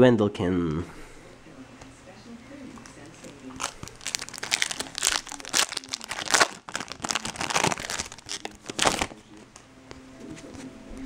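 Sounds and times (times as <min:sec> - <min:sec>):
foil wrapper crinkling: 0:02.8 - 0:09.4.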